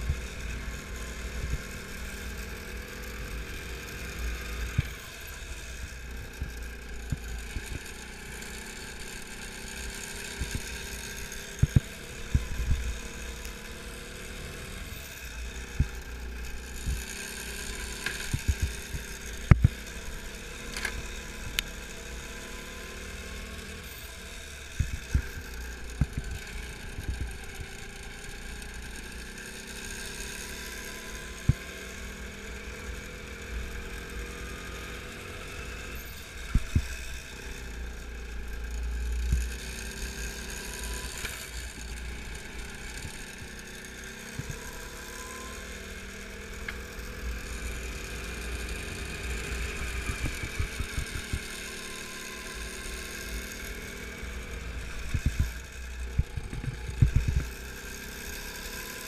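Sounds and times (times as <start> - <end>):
go-kart engine running: 0.0 - 59.0
low chassis rumble: 10.3 - 22.2.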